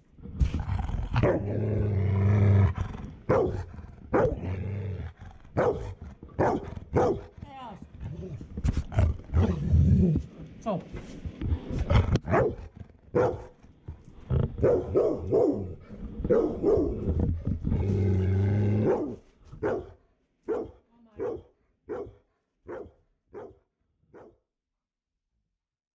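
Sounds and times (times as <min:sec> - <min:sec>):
dog growling: 0:00.1 - 0:10.3, 0:11.5 - 0:20.0
dog barking: 0:01.2 - 0:01.5, 0:03.3 - 0:04.4, 0:05.6 - 0:07.3, 0:12.2 - 0:13.5, 0:14.6 - 0:17.1, 0:18.8 - 0:24.4.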